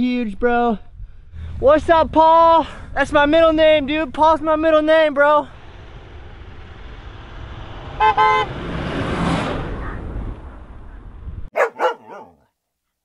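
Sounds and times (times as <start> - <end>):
truck driving past: 5.5 - 12.2
vehicle horn tooting: 8.0 - 8.5
dog barking: 11.6 - 12.5.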